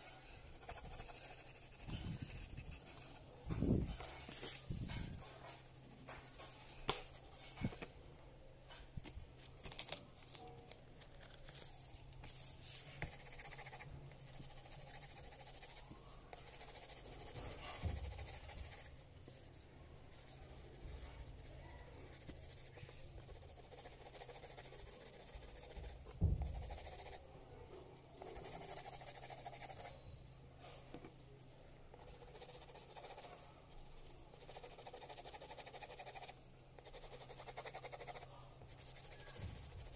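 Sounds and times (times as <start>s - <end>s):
pencil scratching on paper: 0.0s - 7.8s, 12.3s - 19.0s, 20.1s - 27.2s, 28.2s - 30.0s, 31.9s - 39.9s
faint low hum: 0.0s - 39.9s.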